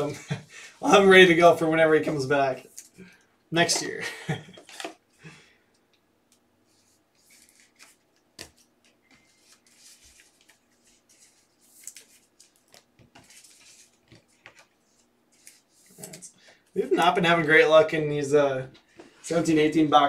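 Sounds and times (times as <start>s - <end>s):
trading cards rustling: 4.6s - 5.0s, 6.7s - 16.6s.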